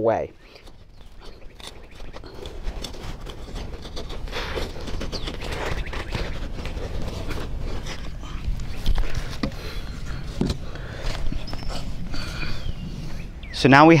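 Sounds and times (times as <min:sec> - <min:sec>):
trowel digging in soil: 0:00.4 - 0:09.4.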